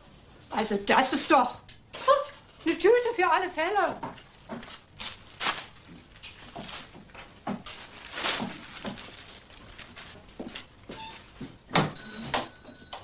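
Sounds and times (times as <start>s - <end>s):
shopping bag rustling: 3.8s - 11.4s.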